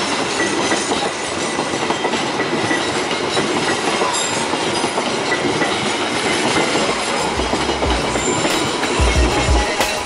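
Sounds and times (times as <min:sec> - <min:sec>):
train wheels rumbling on rails: 0:00.0 - 0:10.0.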